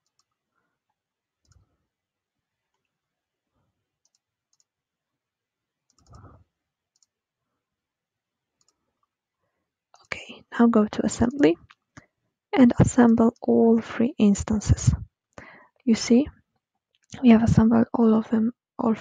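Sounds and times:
faint computer mouse clicks: 0.0s - 0.4s, 4.0s - 4.7s, 5.9s - 6.2s, 6.9s - 7.1s, 8.6s - 8.8s.

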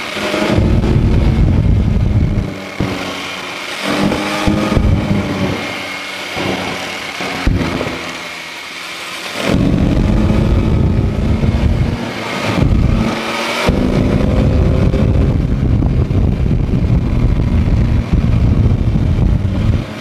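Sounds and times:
motorcycle engine revving: 0.0s - 20.0s.

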